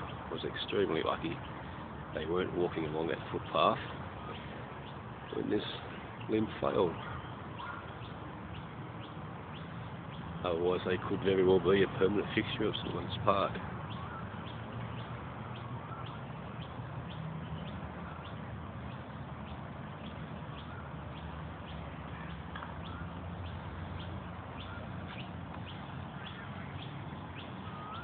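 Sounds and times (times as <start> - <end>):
birds chirping: 0.0 - 28.0.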